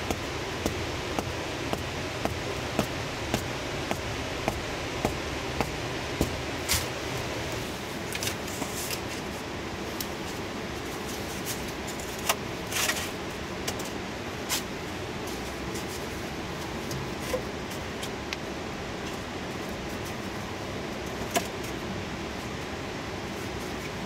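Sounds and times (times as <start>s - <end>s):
steady rushing background: 0.0s - 8.3s
bamboo poles knocking and scraping: 0.0s - 9.2s.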